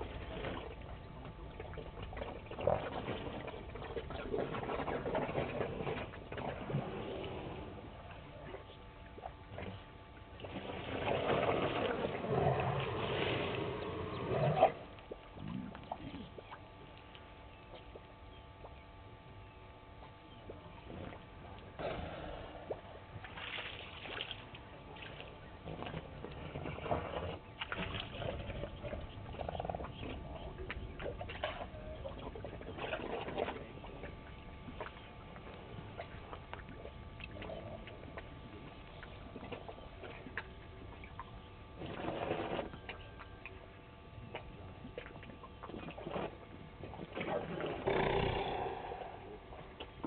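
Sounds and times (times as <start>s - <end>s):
water splashing and gurgling: 0.0s - 18.8s, 20.4s - 50.0s
elephant sucking and squirting water: 10.4s - 14.8s, 41.8s - 42.9s.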